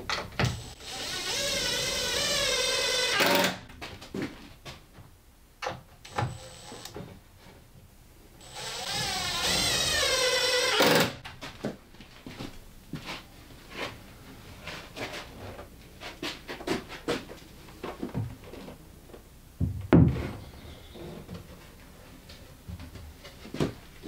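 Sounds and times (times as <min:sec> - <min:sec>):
heavy thump of cabinet set down: 0:19.6 - 0:20.4.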